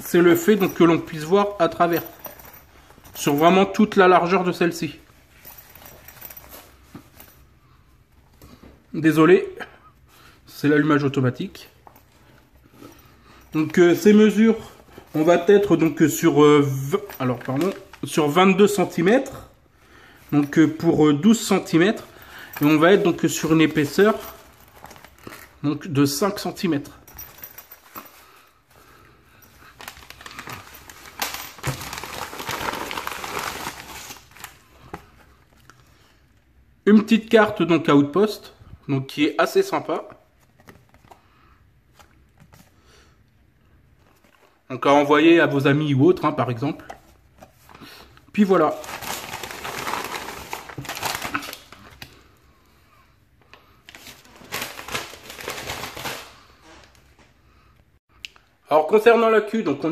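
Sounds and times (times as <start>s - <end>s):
plastic envelope crinkling: 16.7s - 18.3s, 29.6s - 35.7s, 47.3s - 52.2s, 53.8s - 57.1s.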